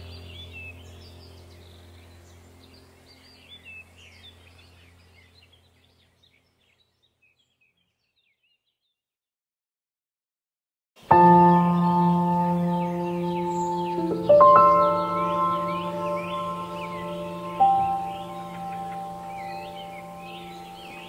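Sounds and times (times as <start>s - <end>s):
birdsong chirps: 0.0s - 9.1s, 11.0s - 21.0s
low sustained drone: 11.2s - 21.0s.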